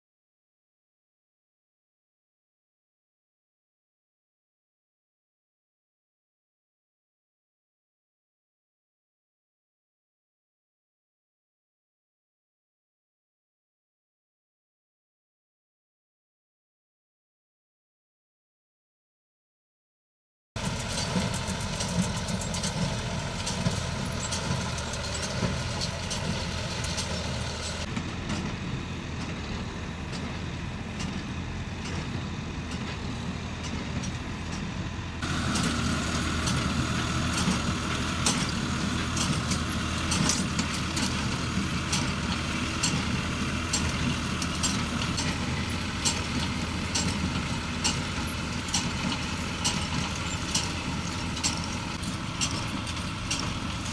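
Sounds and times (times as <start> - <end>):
tractor engines running: 20.6 - 53.9.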